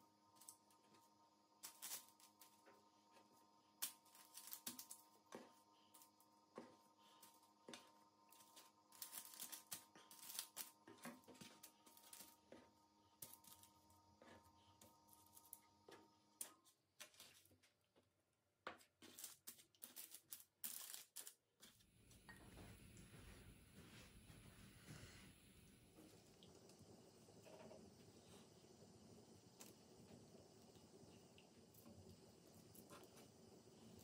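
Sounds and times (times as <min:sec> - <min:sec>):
faint steady hum: 0:00.0 - 0:18.2, 0:21.8 - 0:34.0
parchment paper rustling: 0:07.0 - 0:13.8.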